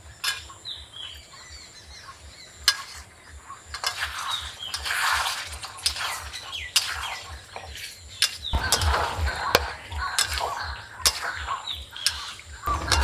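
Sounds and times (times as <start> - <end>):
steel spatula scraping a pan: 2.7 - 3.1, 3.7 - 13.0
distant loudspeaker music beat: 8.6 - 13.0.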